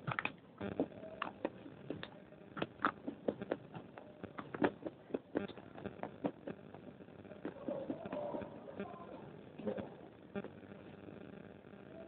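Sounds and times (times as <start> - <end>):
biscuit crunching while chewed: 0.0 - 8.5.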